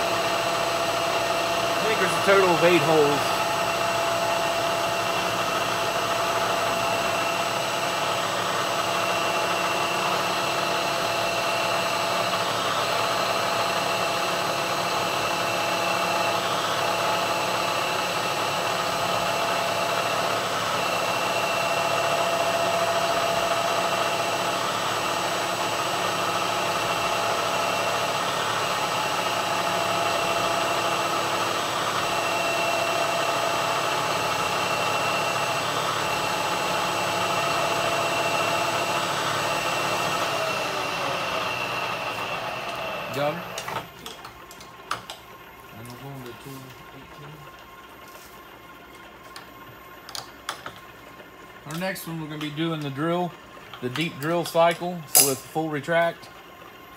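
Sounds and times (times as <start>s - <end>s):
high machine whine: 0.0s - 44.0s
milling machine spindle hum: 0.0s - 56.9s.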